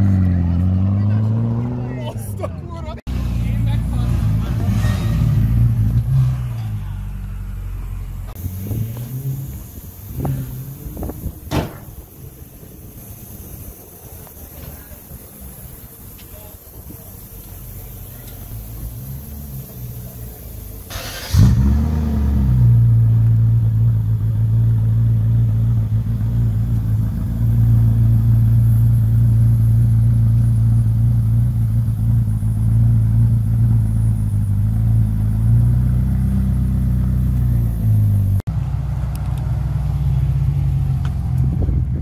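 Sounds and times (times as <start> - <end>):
another car engine running: 0.0 - 42.0
car engine starting and idling: 0.0 - 42.0.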